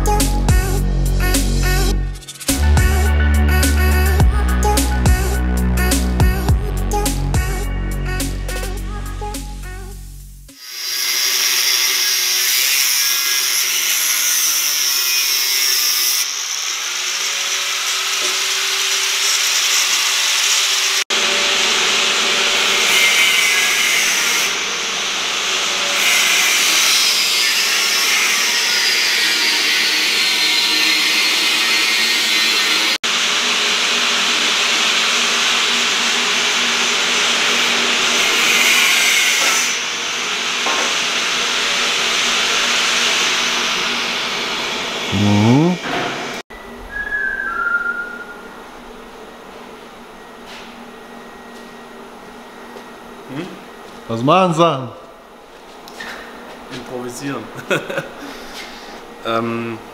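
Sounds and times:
angle grinder cutting metal: 10.6 - 45.8.

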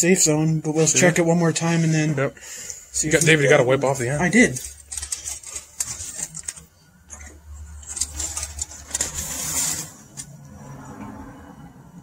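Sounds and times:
paper towel rustling: 3.0 - 6.7, 7.8 - 10.4.

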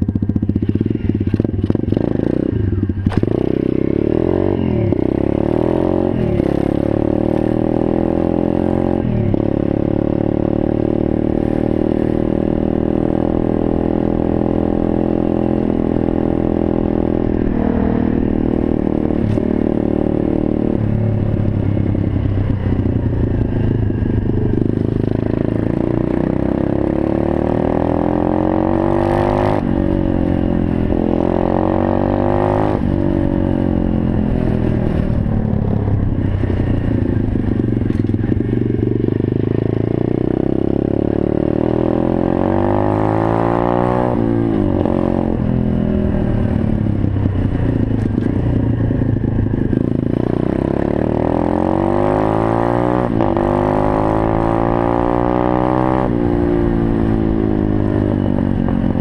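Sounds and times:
motorbike engine revving: 0.0 - 59.0.

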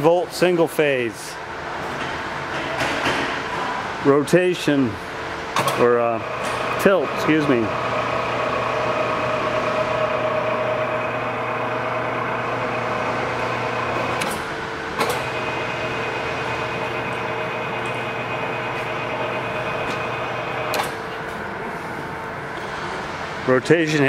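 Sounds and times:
electric motor and gear whine: 5.9 - 21.6.

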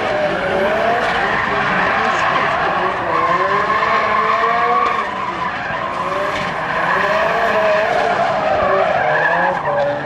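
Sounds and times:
car engine revving: 0.0 - 10.0
tyres squealing on asphalt: 0.0 - 10.0.

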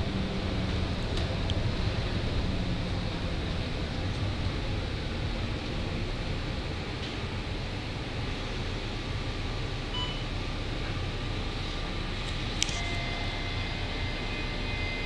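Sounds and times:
bus engine and road noise: 0.0 - 15.0
short beep: 9.9 - 10.3, 12.8 - 15.0
steady high tone: 12.6 - 15.0.

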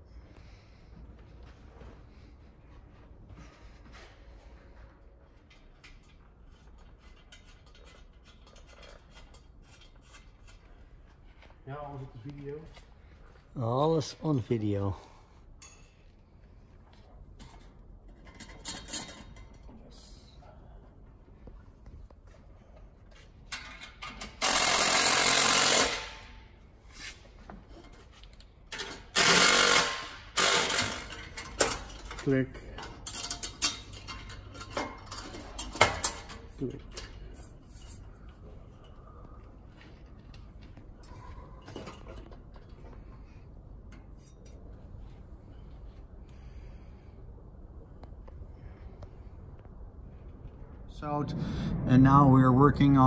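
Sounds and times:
low steady hum: 30.4 - 53.0.

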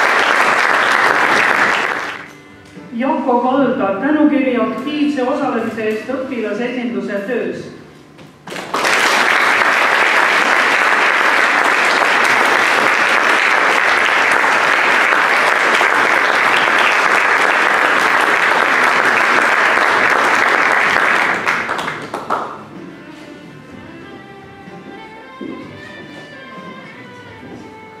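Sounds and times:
audience applauding: 0.0 - 2.3, 8.5 - 22.6.

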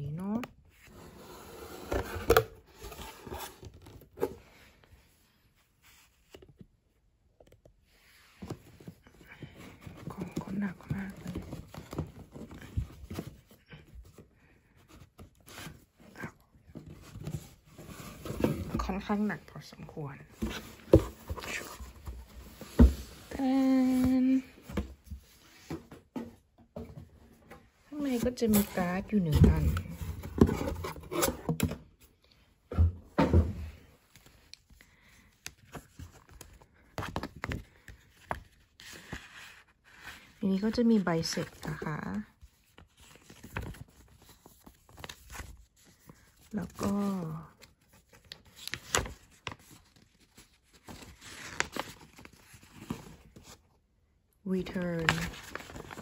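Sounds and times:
paper rustling: 41.3 - 53.6, 54.7 - 56.0.

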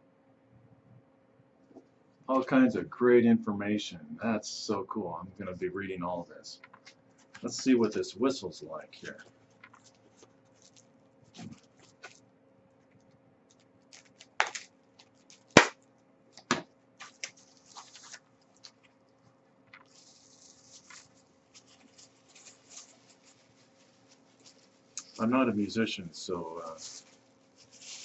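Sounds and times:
paper and plastic wrapping rustling: 6.6 - 8.1, 9.0 - 12.2, 13.0 - 15.8, 16.4 - 28.0.

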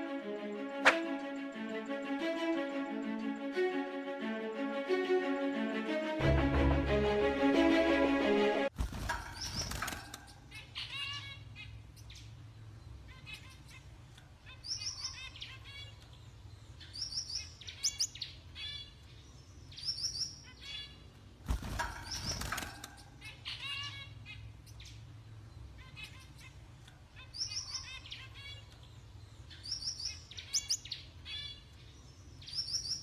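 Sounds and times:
finch chirping: 9.2 - 21.1, 21.9 - 33.0.

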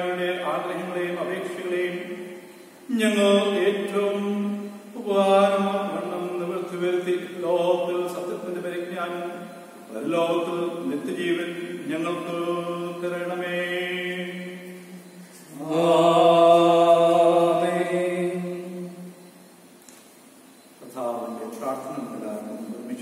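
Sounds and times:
man chanting a prayer: 0.0 - 14.9, 15.5 - 18.9, 20.8 - 23.0.

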